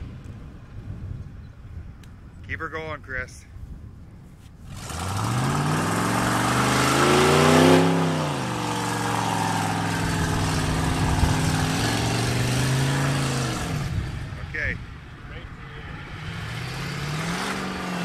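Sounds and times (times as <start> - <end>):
pickup truck engine revving: 4.7 - 14.6, 15.8 - 18.0.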